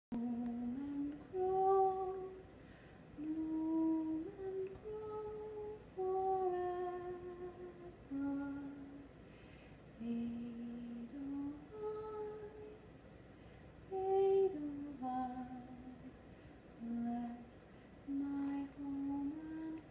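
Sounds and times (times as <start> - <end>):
woman humming a slow tune: 0.1 - 2.5, 3.2 - 9.1, 10.0 - 13.2, 13.9 - 16.2, 16.8 - 19.9.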